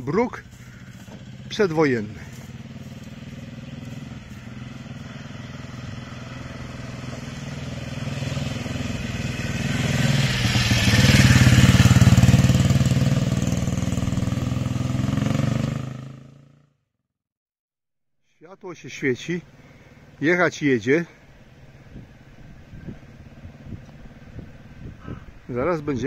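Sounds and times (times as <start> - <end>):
motorcycle engine passing by: 0.2 - 16.8.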